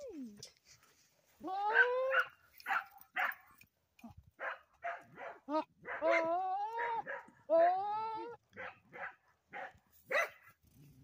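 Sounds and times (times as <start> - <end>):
goat bleating: 5.5 - 8.4.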